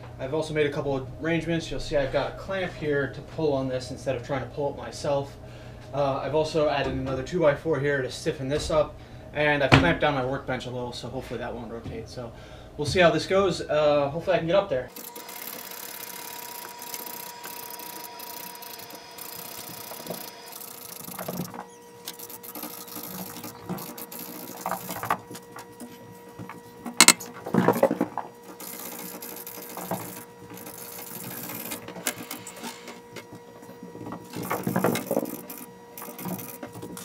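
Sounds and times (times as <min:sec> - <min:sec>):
faint steady hum: 0:00.0 - 0:37.0
clamp clicking and creaking: 0:26.9 - 0:27.9.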